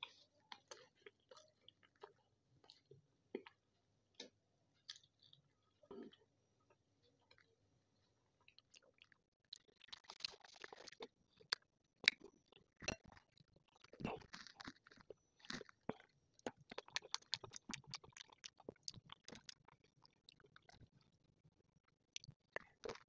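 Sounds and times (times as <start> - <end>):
chewing with wet mouth clicks: 8.4 - 21.2, 22.2 - 23.0.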